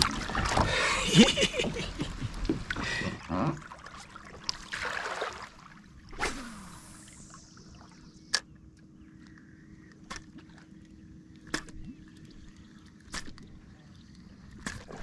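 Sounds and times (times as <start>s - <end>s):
fishing line whizzing off reel: 6.1s - 7.7s.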